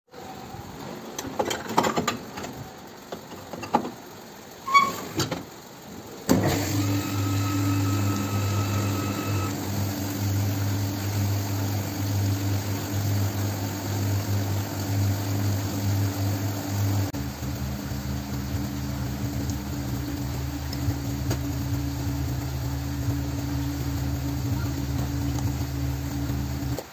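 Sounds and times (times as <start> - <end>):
washer humming: 0.2 - 26.9
thin whine: 6.4 - 26.9.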